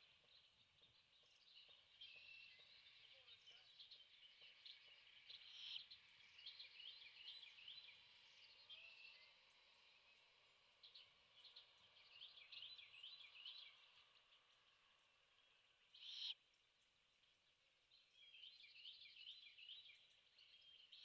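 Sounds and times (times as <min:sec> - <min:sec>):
songbirds chirping and trilling: 0:00.0 - 0:21.0.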